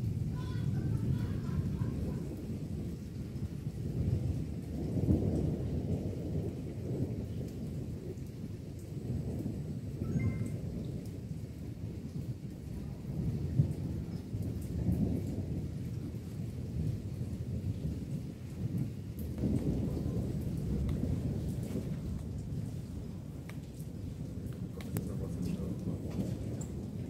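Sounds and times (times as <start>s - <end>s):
rain falling: 0.0s - 27.0s
thunder rumbling: 0.0s - 27.0s.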